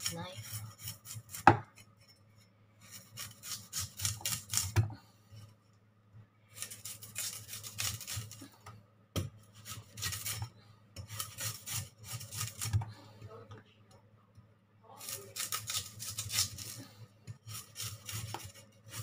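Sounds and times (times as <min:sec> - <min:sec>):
cleaver scraping root skin: 0:00.0 - 0:01.4, 0:02.8 - 0:04.8, 0:06.5 - 0:08.5, 0:09.6 - 0:10.5, 0:11.1 - 0:12.8, 0:15.0 - 0:19.0.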